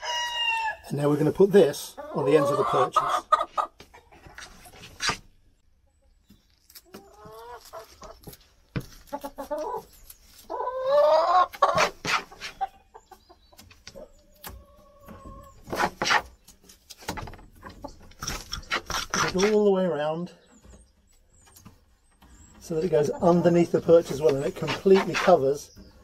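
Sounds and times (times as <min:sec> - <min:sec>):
hen clucking: 0:00.0 - 0:16.8, 0:17.4 - 0:26.0
tape rustling and knocking: 0:07.8 - 0:09.7, 0:15.1 - 0:19.6.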